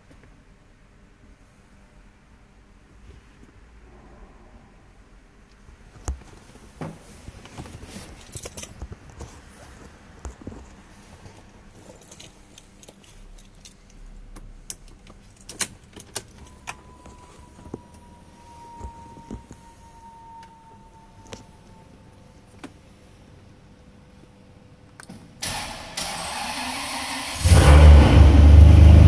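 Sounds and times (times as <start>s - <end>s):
car keys jangling: 8.2s - 8.8s, 11.7s - 17.0s
falling electronic tone: 16.5s - 22.2s.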